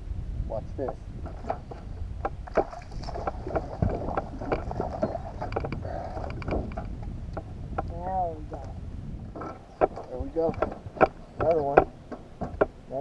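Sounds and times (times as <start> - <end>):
wind on microphone: 0.0 - 13.0
water against boat hull: 0.8 - 8.6, 9.2 - 13.0
clicks and knocks of gear: 1.3 - 8.0.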